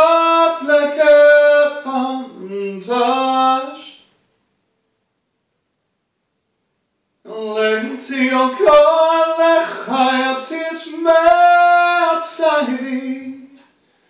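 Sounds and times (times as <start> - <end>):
man singing a cappella: 0.0 - 4.1, 7.3 - 13.7.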